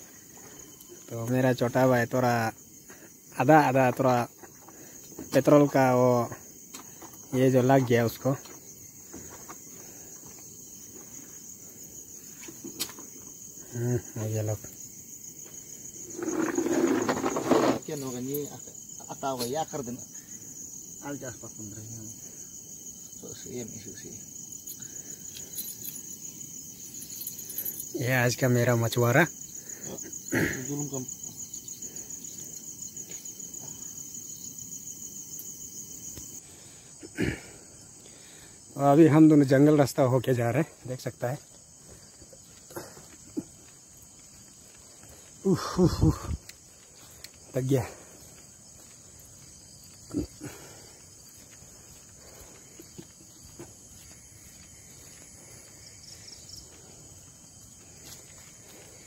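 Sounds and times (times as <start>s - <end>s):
crickets chirping: 0.0s - 59.0s
soft footsteps: 41.4s - 45.4s, 46.1s - 59.0s.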